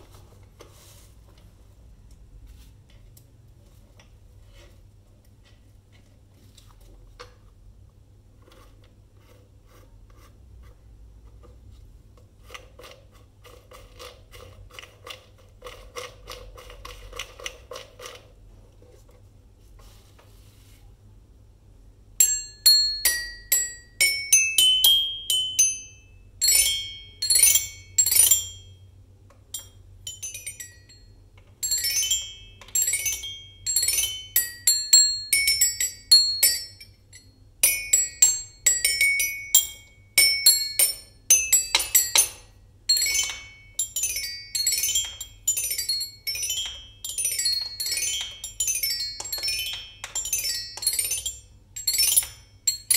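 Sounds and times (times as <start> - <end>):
toy xylophone notes: 22.2 - 28.8, 29.5 - 52.9.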